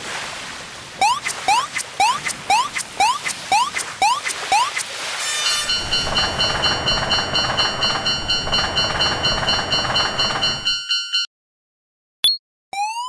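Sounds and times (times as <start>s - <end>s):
railroad crossing alarm dinging: 5.4s - 11.3s
passing train rumble: 5.7s - 10.7s.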